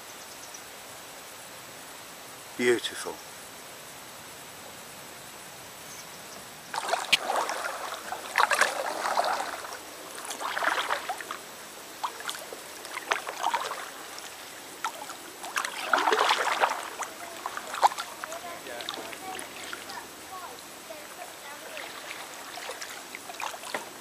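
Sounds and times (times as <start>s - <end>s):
paddle splashing water: 6.7s - 24.0s.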